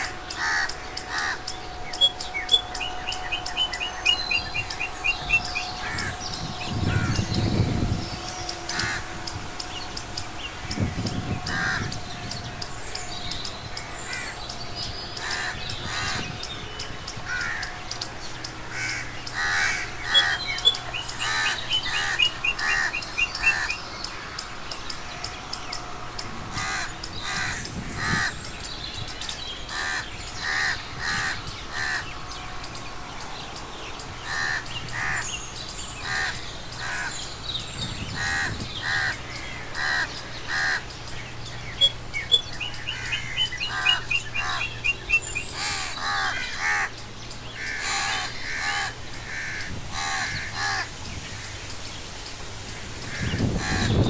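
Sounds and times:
crows cawing: 0.0 - 9.4, 10.2 - 12.4, 13.4 - 14.5, 15.2 - 16.5, 17.2 - 17.9, 18.6 - 24.5, 26.4 - 28.5, 29.7 - 32.4, 34.2 - 35.4, 36.0 - 37.2, 38.1 - 40.9, 42.8 - 44.8, 45.5 - 51.6, 53.0 - 54.0.

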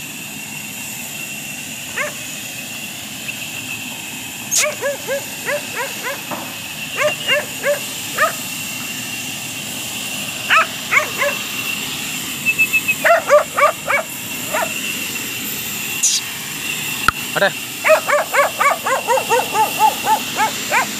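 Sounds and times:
dog barking: 1.9 - 2.3, 4.5 - 8.5, 10.4 - 11.5, 13.0 - 14.8, 17.8 - 20.9.

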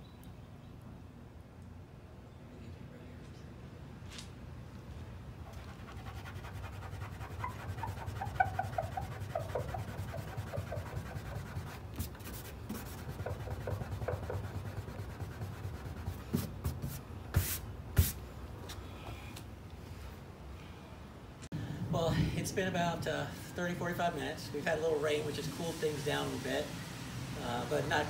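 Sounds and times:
fingers squeaking on car paint: 5.8 - 16.9.

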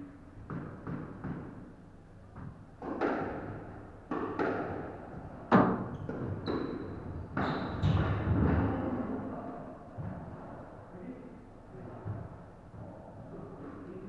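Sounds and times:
squash ball hitting rackets and walls: 0.4 - 9.0.

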